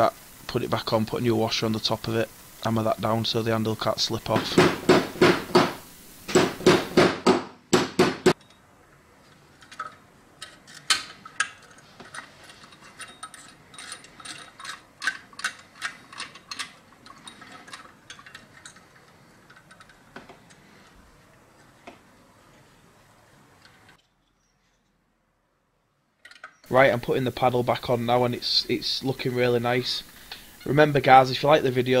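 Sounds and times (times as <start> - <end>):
metal parts clicking: 9.3 - 20.7, 26.2 - 26.7.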